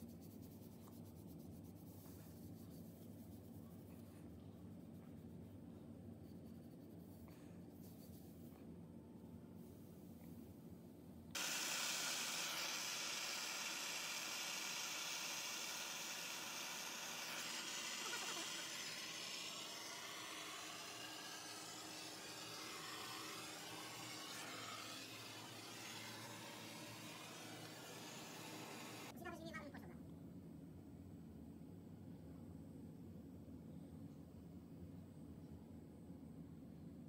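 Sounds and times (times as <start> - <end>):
gas torch hissing: 11.4 - 29.2.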